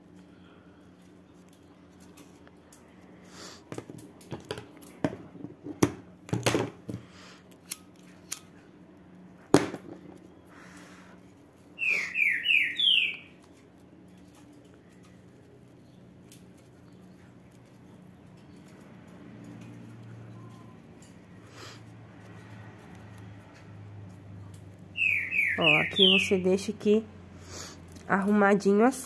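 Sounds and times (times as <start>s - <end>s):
objects clicking and tapping on table: 3.7s - 7.1s
bird chirping: 11.8s - 13.5s, 24.9s - 26.5s.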